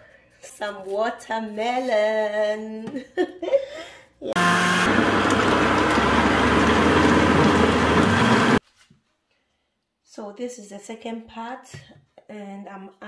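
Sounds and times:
electric blender whirring: 0:04.4 - 0:08.6.

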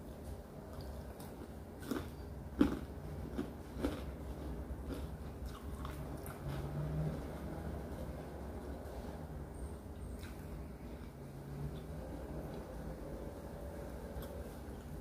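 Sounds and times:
low steady hum: 0:00.0 - 0:15.0
person chewing food: 0:00.7 - 0:07.2.

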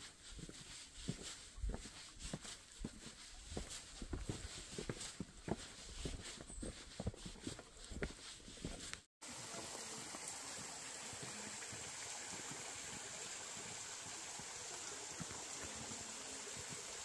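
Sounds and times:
footsteps on a path: 0:00.0 - 0:09.1, 0:11.1 - 0:14.2, 0:14.8 - 0:16.8
water rushing along a channel: 0:09.2 - 0:17.0.

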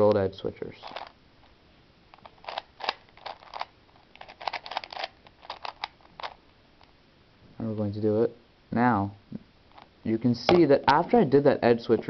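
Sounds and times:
puzzle cube plastic clicks: 0:00.8 - 0:01.1, 0:02.1 - 0:06.9.

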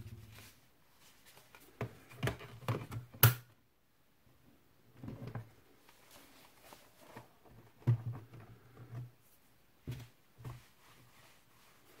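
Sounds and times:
faint rubbing and shuffling: 0:00.0 - 0:02.6, 0:05.0 - 0:12.0.

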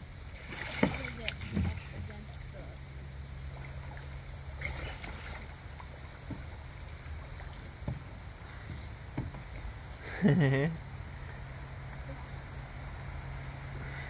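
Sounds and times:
steady low hum: 0:00.0 - 0:14.0
water moving along hull: 0:00.0 - 0:14.0
paddle strokes splashing water: 0:00.2 - 0:02.7, 0:03.3 - 0:10.2.

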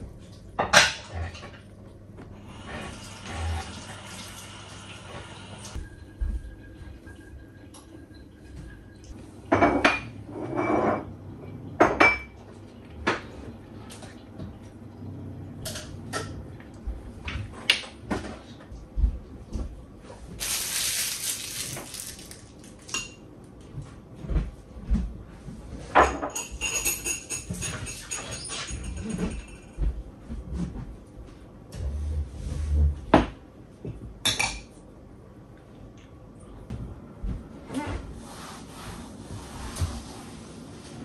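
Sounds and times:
pots and dishes clinking: 0:25.9 - 0:29.8.

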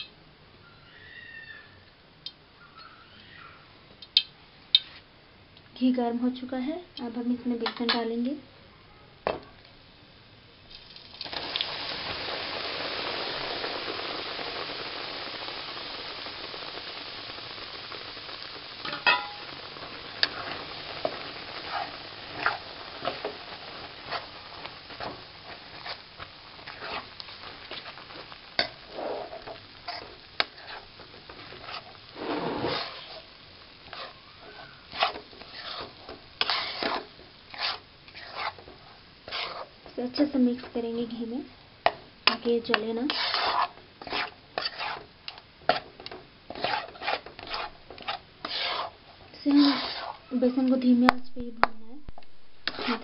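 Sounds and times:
flour sizzling in hot fat: 0:10.6 - 0:53.0
steel spoon scraping a pan: 0:18.8 - 0:26.0, 0:26.7 - 0:39.8, 0:42.3 - 0:50.6, 0:52.6 - 0:53.0.

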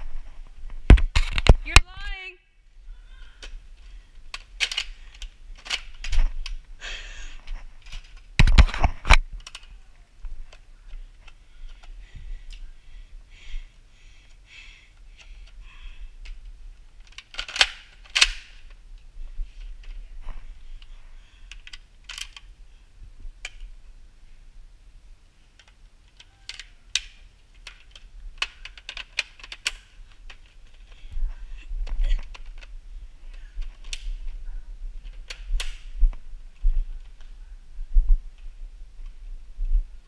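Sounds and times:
toy blaster clicks and knocks: 0:17.0 - 0:18.5.

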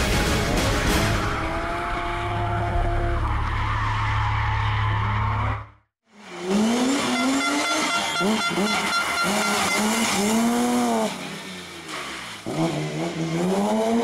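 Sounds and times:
rally car engine revving: 0:06.2 - 0:14.0
tyre squealing and skidding: 0:06.4 - 0:14.0.

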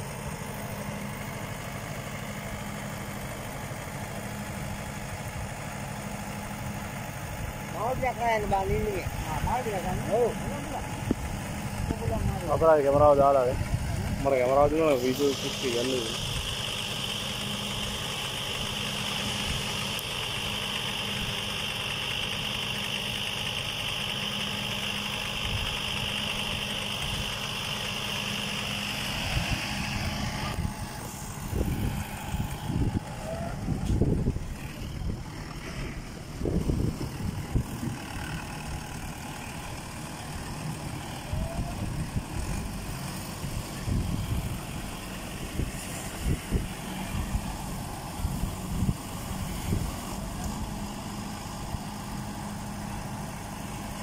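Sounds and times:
tractor engine idling: 0:00.0 - 0:54.0
gusty low rumbling: 0:29.2 - 0:38.3.

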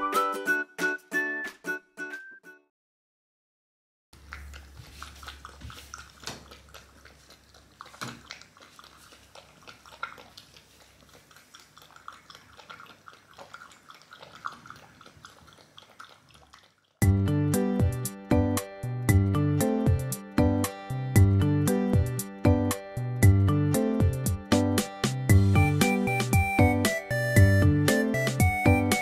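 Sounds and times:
puppy chewing in bowl: 0:04.2 - 0:17.2.

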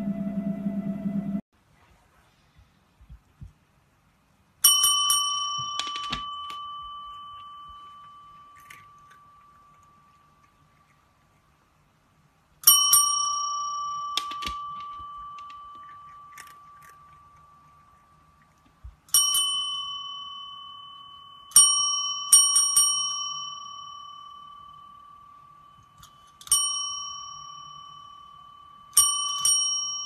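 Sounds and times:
desk service bell ding: 0:04.6 - 0:08.6, 0:12.6 - 0:16.0, 0:19.1 - 0:30.0.

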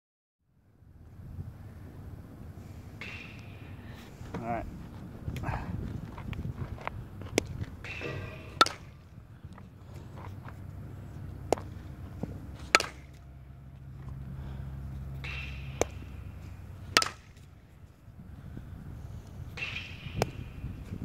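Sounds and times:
bat cracking balls: 0:03.0 - 0:03.8, 0:07.3 - 0:17.6, 0:19.5 - 0:20.7.

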